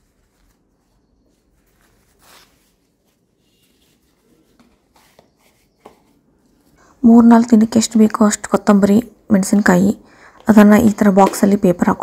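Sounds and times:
paper towel rustling: 0.0s - 6.8s.

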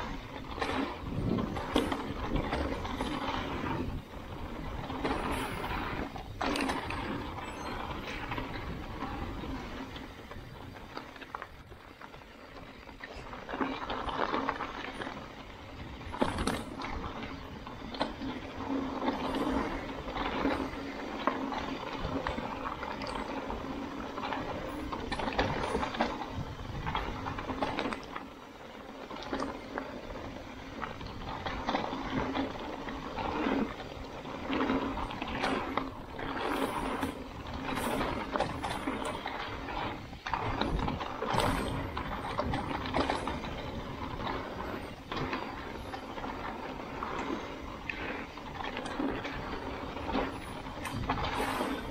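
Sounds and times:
bike knocks and rattles: 0.0s - 51.9s
bike tyres over dirt and rock: 0.0s - 51.9s.

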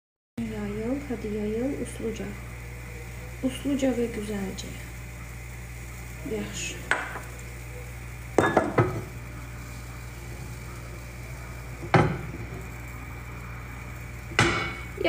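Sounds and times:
steady low hum: 0.4s - 15.0s.

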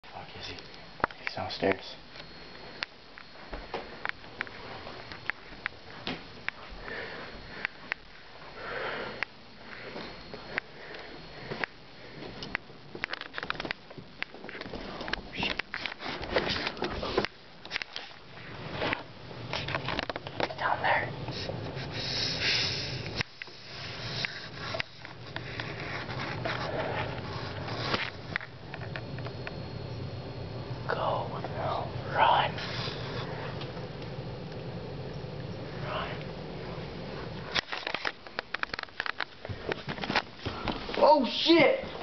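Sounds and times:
person sniffing and breathing: 20.7s - 28.0s, 32.2s - 33.6s.

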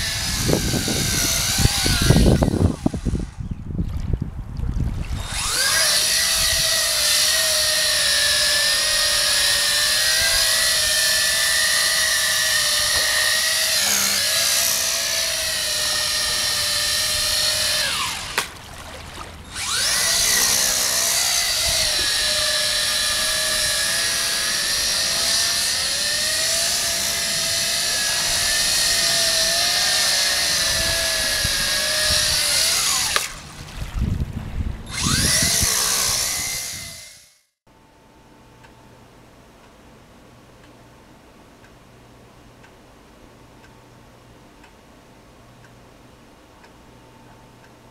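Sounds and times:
toy drone motors whining: 0.0s - 3.5s, 5.2s - 18.5s, 19.4s - 33.3s, 34.9s - 37.5s.

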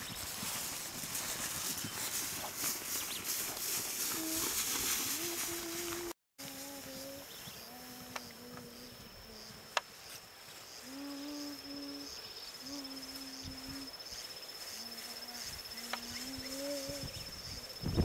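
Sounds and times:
insect trilling: 6.6s - 18.0s.

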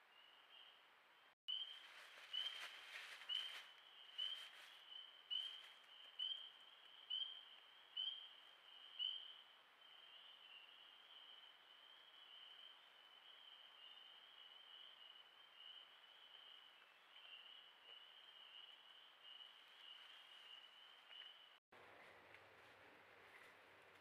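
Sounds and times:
chorus of night calls: 1.5s - 21.6s
faint crackling rustles: 1.6s - 6.5s.

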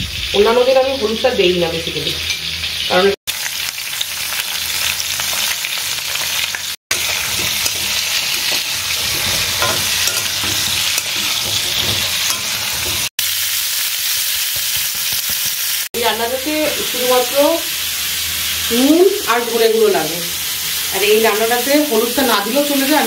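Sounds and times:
vegetables sizzling in oil: 0.0s - 23.0s
vegetables being stirred: 6.5s - 13.1s.

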